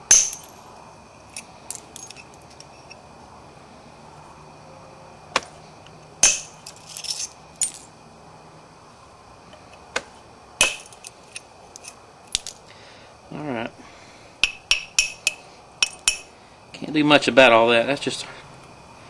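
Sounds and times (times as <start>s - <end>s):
copper striking stone: 0.0s - 0.6s, 6.2s - 6.6s, 10.0s - 10.9s.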